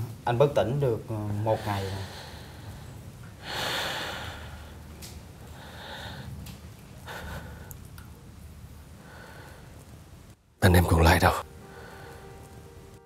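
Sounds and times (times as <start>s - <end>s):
person breathing heavily: 1.6s - 4.8s, 5.5s - 6.4s, 7.0s - 7.8s, 9.0s - 9.8s, 11.6s - 12.3s.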